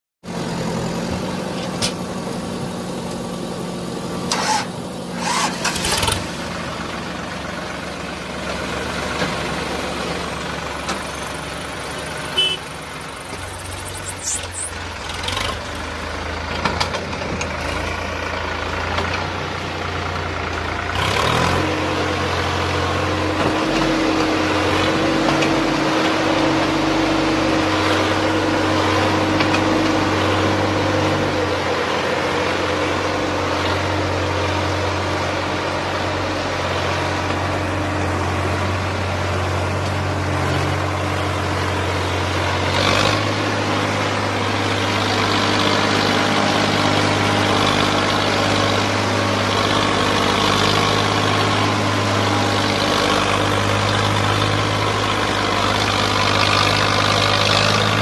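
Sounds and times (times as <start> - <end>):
tractor diesel engine running: 0.2 - 58.0.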